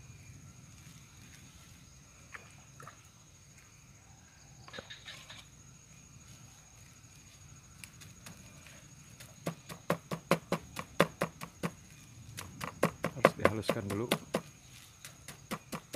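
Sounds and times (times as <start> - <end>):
knife chopping: 12.8 - 14.5.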